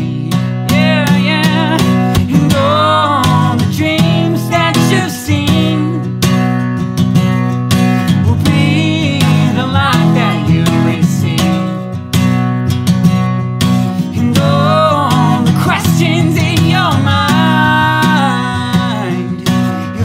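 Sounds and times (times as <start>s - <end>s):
man and woman singing: 0.0s - 6.2s, 8.2s - 12.0s, 14.0s - 20.0s
acoustic guitar strumming: 0.0s - 20.0s.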